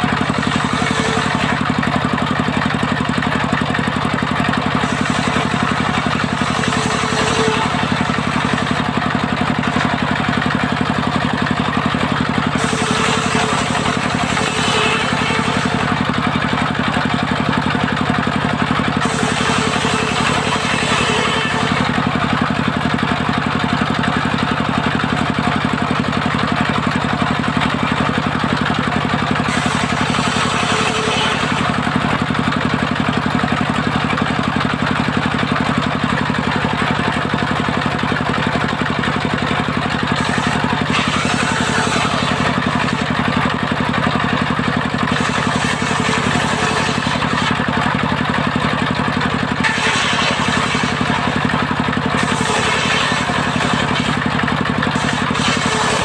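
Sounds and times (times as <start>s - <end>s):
saw bench motor drone: 0.0s - 23.0s, 27.3s - 32.9s, 39.9s - 48.1s, 49.4s - 56.0s
saw blade cutting timber: 0.0s - 56.0s.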